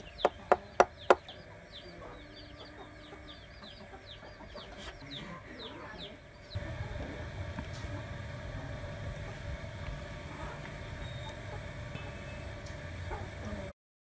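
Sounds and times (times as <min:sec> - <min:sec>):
birds cheeping: 0:00.0 - 0:06.8, 0:10.3 - 0:13.6.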